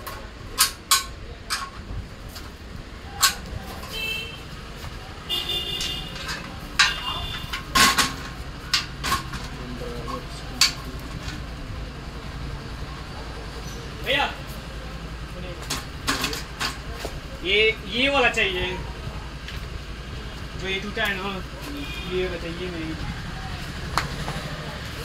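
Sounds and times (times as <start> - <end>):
metal clanks and knocks: 0.0 - 2.5, 5.5 - 11.5, 15.6 - 17.1.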